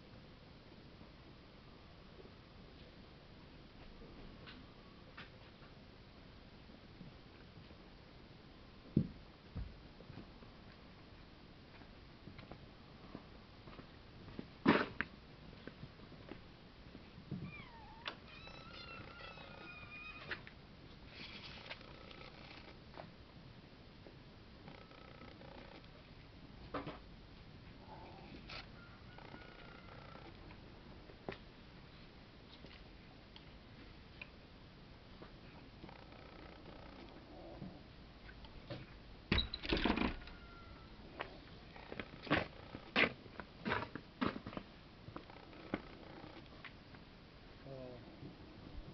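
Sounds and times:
cats meowing: 17.3s - 20.4s.

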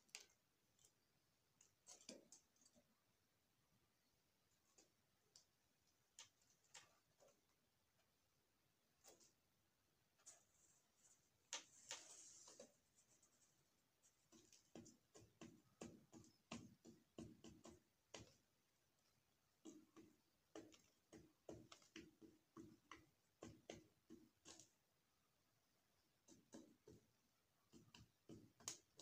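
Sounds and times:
doves pecking on wooden floor: 0.0s - 29.0s.

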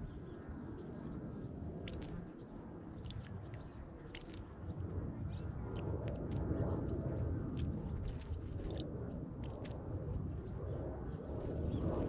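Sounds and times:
wind rumble on microphone: 0.0s - 12.0s
small birds chirping: 0.1s - 8.8s.

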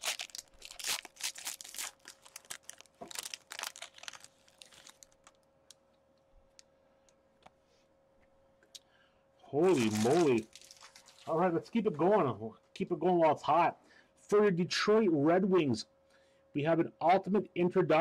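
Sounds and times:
foil wrapper tearing and crinkling: 0.0s - 5.4s, 9.7s - 11.3s.

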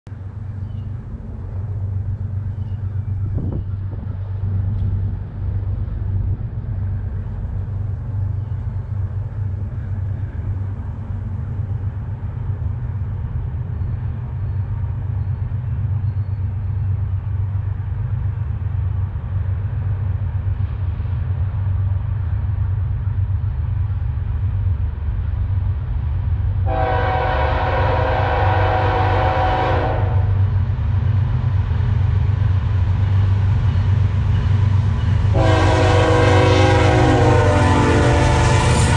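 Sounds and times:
diesel locomotive engine rumble: 0.1s - 38.9s
locomotive horn blast: 26.7s - 30.4s, 35.3s - 38.9s.

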